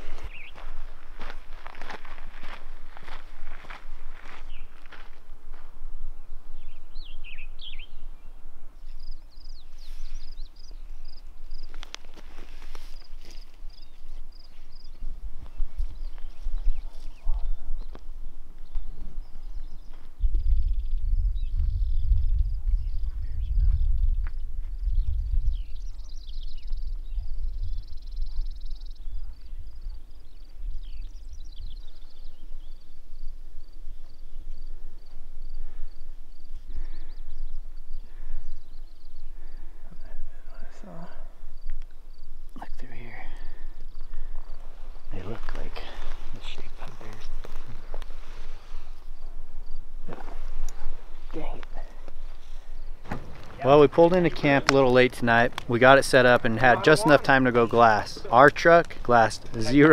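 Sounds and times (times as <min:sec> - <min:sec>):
high bird chirps: 0:06.6 - 0:11.2
wind rumble on microphone: 0:13.7 - 0:42.4
songbird warbled phrase: 0:16.6 - 0:17.9, 0:53.6 - 0:59.9.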